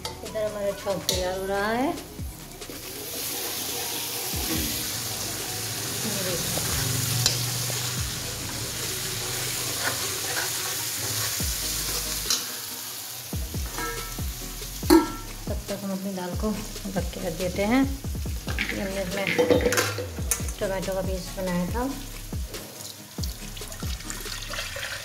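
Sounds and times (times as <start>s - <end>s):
oil sizzling: 0.0s - 25.0s
metal clank: 13.7s - 14.2s
spoon clinking against pan: 13.8s - 14.2s.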